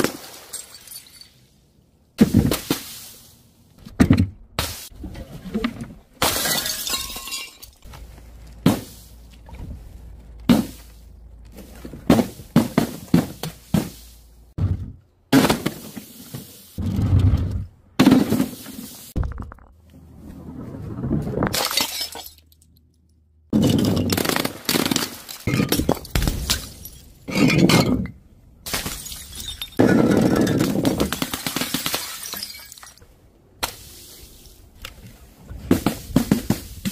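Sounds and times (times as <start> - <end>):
glass shattering: 0.3 - 1.4, 6.2 - 7.9, 21.5 - 22.6, 28.7 - 30.9, 31.7 - 33.0.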